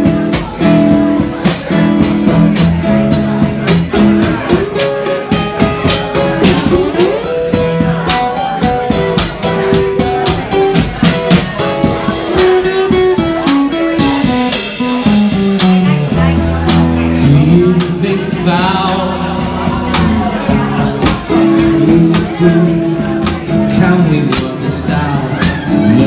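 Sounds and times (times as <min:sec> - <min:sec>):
electric guitar melody: 0:00.0 - 0:26.0
steady drum beat: 0:00.0 - 0:26.0.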